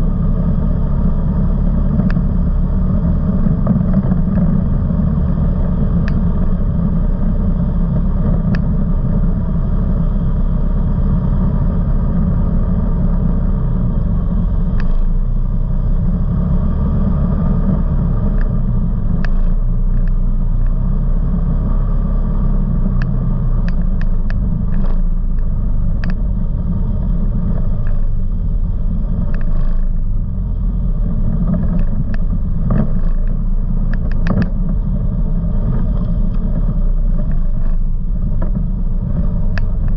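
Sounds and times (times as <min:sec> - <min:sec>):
off-road vehicle engine droning: 0:00.0 - 0:39.9
sharp clicks and knocks: 0:19.2 - 0:20.8, 0:22.8 - 0:26.3, 0:27.5 - 0:28.2, 0:29.2 - 0:30.1, 0:31.3 - 0:34.9, 0:35.6 - 0:39.9.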